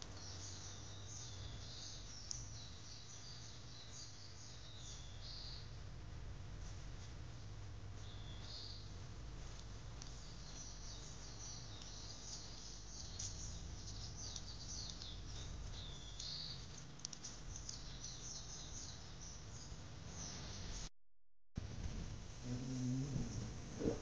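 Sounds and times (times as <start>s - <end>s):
small birds chirping and singing: 0.0s - 5.8s, 8.0s - 20.8s.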